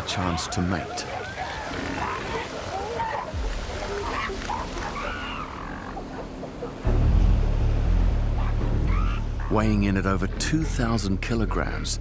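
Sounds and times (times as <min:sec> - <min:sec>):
elephant seals calling: 0:00.0 - 0:06.9, 0:08.4 - 0:11.0
deep low music drone: 0:06.1 - 0:12.0.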